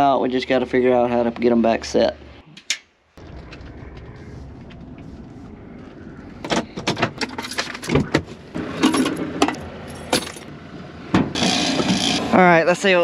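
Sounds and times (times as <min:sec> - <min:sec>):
keys jangling: 0:09.8 - 0:10.5.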